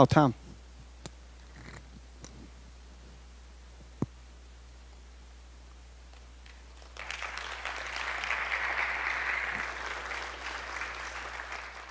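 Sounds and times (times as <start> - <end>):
audience applauding: 6.4 - 11.9.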